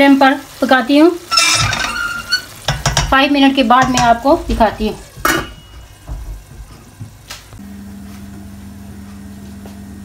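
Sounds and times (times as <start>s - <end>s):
metal lid clanking on pan: 1.3s - 4.2s, 5.2s - 5.9s.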